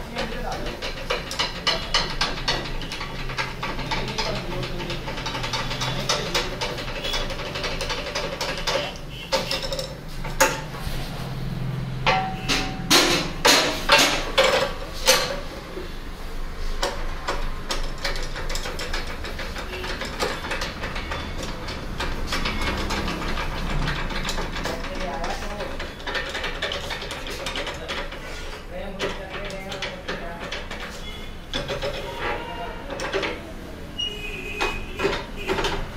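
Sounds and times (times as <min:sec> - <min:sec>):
metal clicks and ratcheting: 0:00.0 - 0:10.7, 0:16.8 - 0:33.5
sharp metal strikes: 0:12.0 - 0:14.3.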